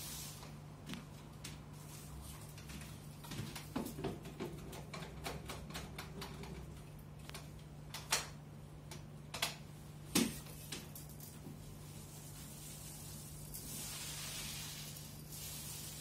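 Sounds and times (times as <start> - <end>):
paint roller clicking on wall: 2.2 - 16.0.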